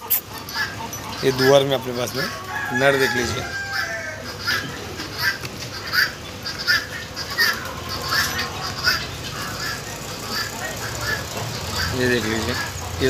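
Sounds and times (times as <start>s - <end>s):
chickens giving short calls: 0.0s - 13.0s.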